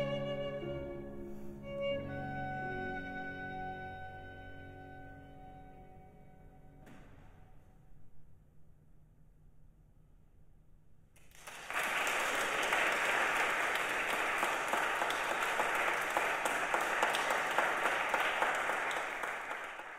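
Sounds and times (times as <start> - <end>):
audience applause: 11.2 - 19.9.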